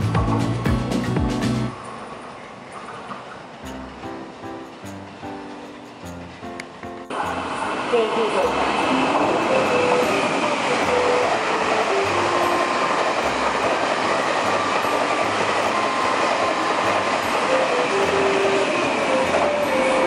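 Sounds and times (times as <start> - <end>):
train wheels rushing on rails: 0.0 - 20.0.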